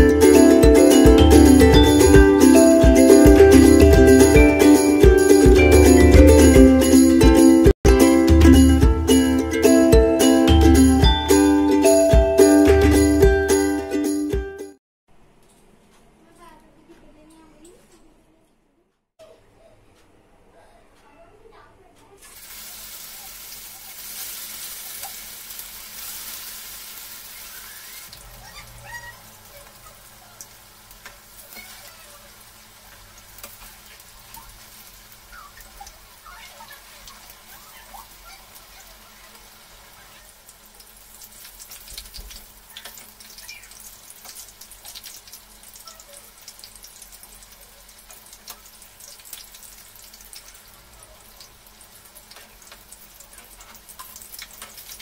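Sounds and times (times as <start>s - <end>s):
deep-frying sizzle: 22.2s - 55.0s
oil pops and crackles: 41.2s - 45.4s, 52.2s - 55.0s.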